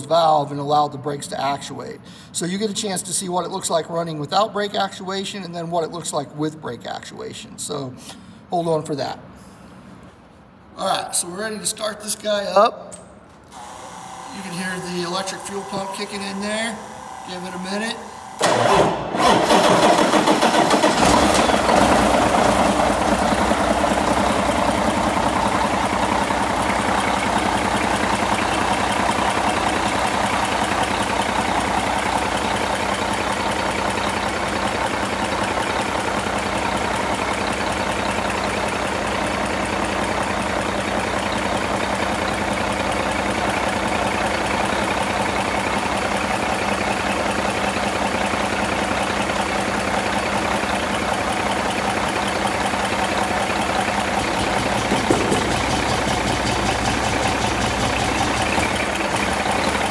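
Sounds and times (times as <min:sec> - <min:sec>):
diesel engine starting and idling: 0:13.4 - 0:59.9.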